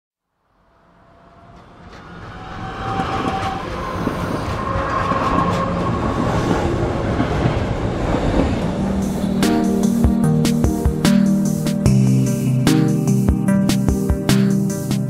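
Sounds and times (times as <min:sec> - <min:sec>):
high-pitched wheel squeals: 0:01.1 - 0:06.8
train rumbling on track: 0:01.2 - 0:12.4.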